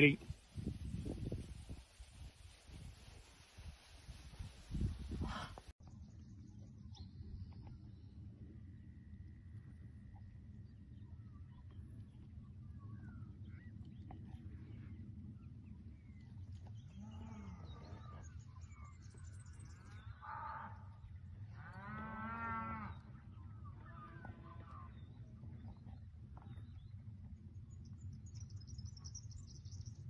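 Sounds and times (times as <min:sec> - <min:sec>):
cattle mooing: 0:21.6 - 0:23.0.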